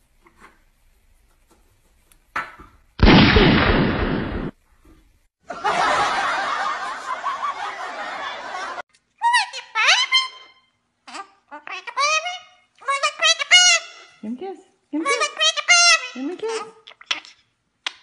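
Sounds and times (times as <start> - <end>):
laughter: 5.4 - 8.8.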